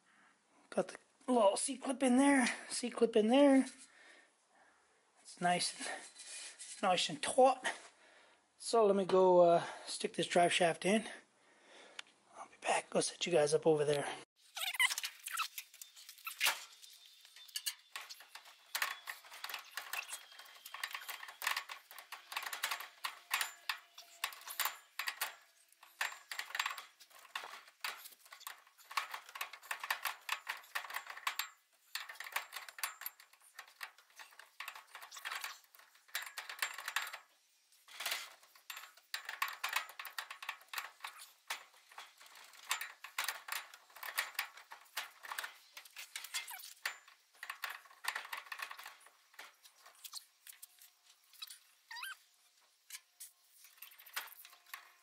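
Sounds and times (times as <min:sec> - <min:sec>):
metal parts clinking and clattering: 0:14.6 - 0:55.0.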